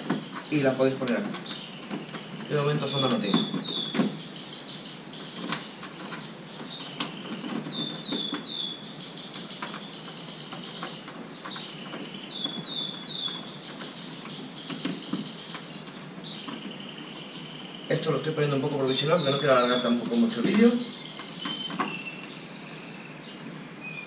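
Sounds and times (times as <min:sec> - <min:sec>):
light clicks and knocks: 0:00.0 - 0:04.3, 0:05.2 - 0:08.6, 0:09.3 - 0:16.8, 0:20.0 - 0:22.4
canaries singing: 0:00.0 - 0:24.0.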